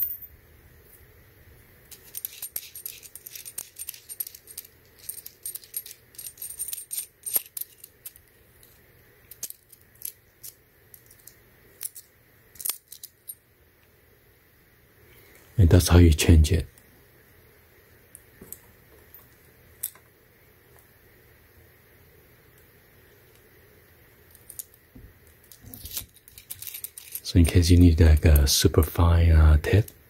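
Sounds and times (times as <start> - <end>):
small metal parts clicking: 1.9 - 13.4, 24.3 - 27.6.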